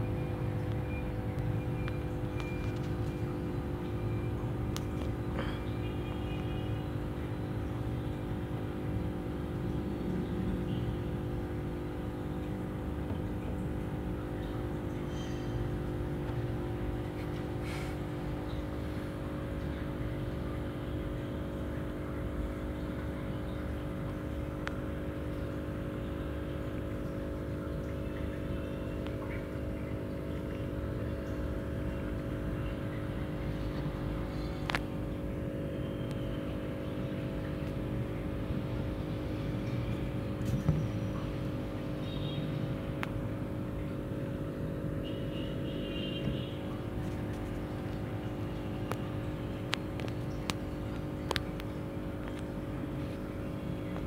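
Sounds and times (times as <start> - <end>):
steady mechanical hum: 0.0 - 54.0
faint clicks: 49.7 - 52.5.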